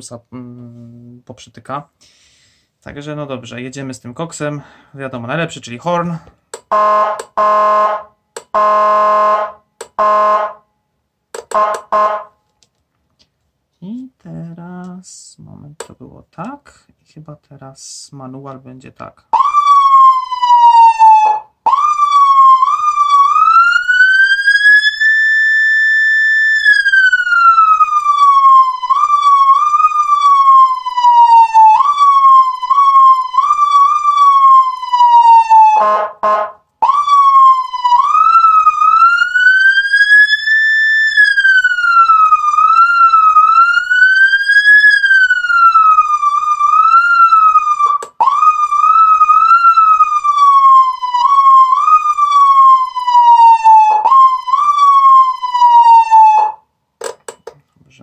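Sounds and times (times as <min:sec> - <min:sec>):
electronic siren wailing: 0:06.7 - 0:10.6, 0:11.5 - 0:12.3, 0:19.3 - 0:56.6
low buzzy horn tone: 0:06.7 - 0:10.6, 0:11.5 - 0:12.3, 0:35.8 - 0:36.6.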